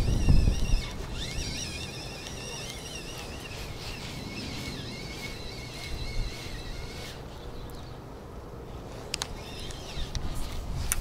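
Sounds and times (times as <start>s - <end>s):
wind rumble on microphone: 0.0s - 8.0s, 8.9s - 11.0s
songbirds warbling: 0.0s - 8.1s.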